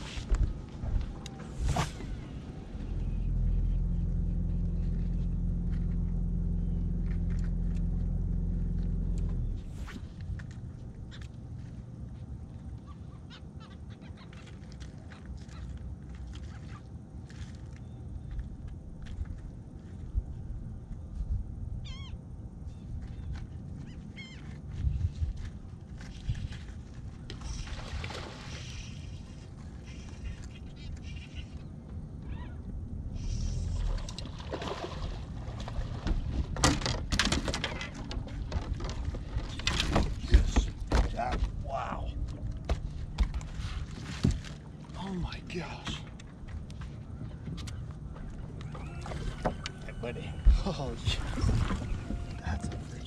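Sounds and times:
steady low rumble: 0.0s - 37.2s, 37.8s - 48.7s
birds calling: 28.5s - 33.9s
fish splashing in water: 33.6s - 36.4s.

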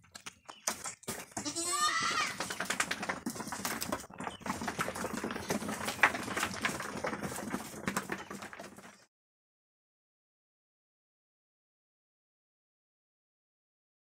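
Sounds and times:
hooves shuffling on wooden floor: 0.0s - 9.1s
goat bleating: 1.4s - 2.5s.

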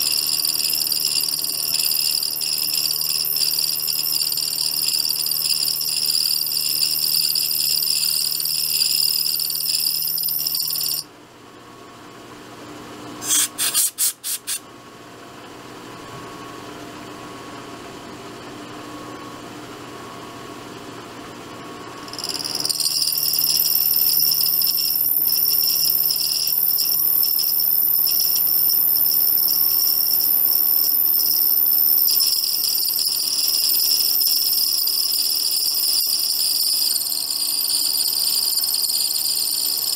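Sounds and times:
machine running hum: 0.0s - 11.1s, 15.4s - 39.9s
milling cutter squealing: 13.2s - 14.6s, 22.1s - 39.9s.

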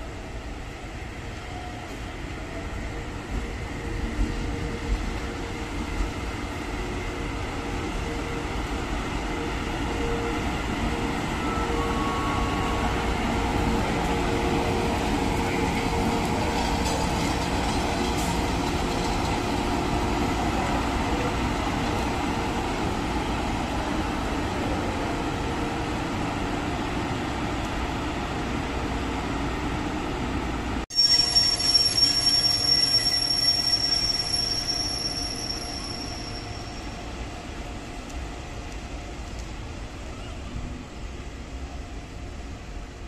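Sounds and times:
electric locomotive motors humming: 0.1s - 29.5s.

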